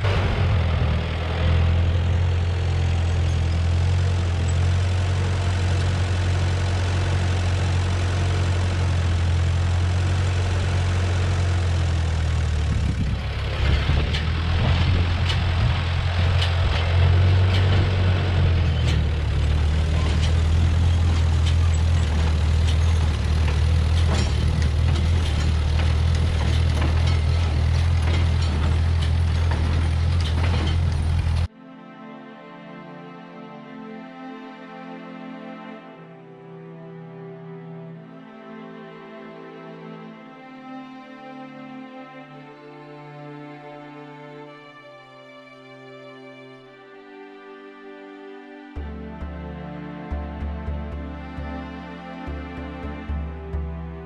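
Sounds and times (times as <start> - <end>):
tractor engine running: 0.0 - 31.5, 48.8 - 54.0.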